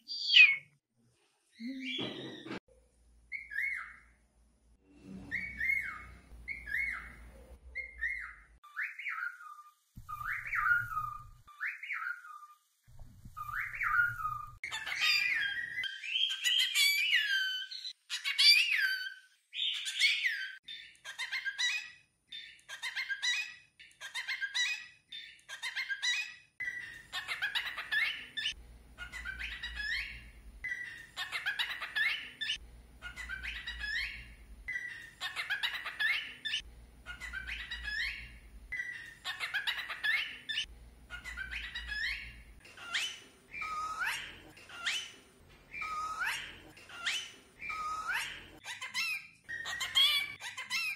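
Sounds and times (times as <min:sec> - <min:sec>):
cockatiel talking: 0:26.8 - 0:50.9.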